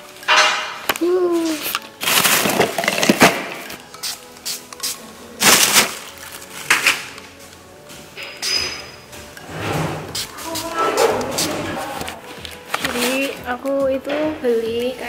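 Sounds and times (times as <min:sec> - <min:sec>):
plastic bag and bottles rustling: 0:00.0 - 0:15.0
soft background music: 0:00.0 - 0:15.0
pump spray bottle hiss: 0:01.4 - 0:07.0, 0:09.7 - 0:11.9.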